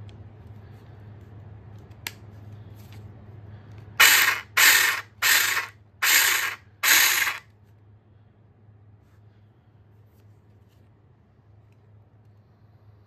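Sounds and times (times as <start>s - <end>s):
mini chainsaw whirring: 4.0s - 7.4s.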